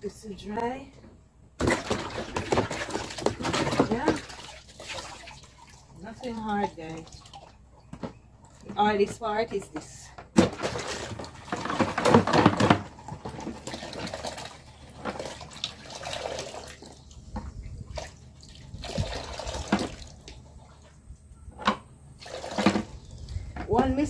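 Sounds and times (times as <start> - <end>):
water pouring into plastic basin: 1.6 - 7.6, 10.4 - 17.0, 17.9 - 20.9, 22.2 - 22.9.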